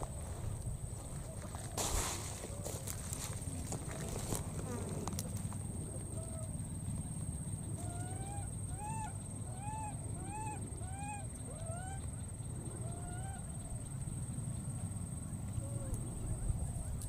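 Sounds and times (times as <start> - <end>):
baby monkey calling: 7.8 - 12.1.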